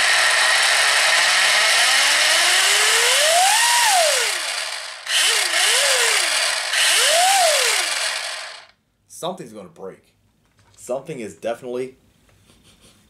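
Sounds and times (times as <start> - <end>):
drivetrain rushing noise: 0.0 - 8.7
electric motor whine: 0.0 - 8.7.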